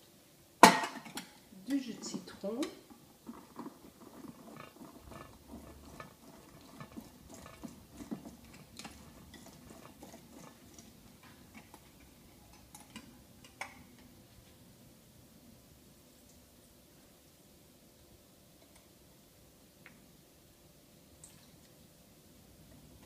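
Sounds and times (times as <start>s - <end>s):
lemon scraping on juicer: 3.2s - 13.1s.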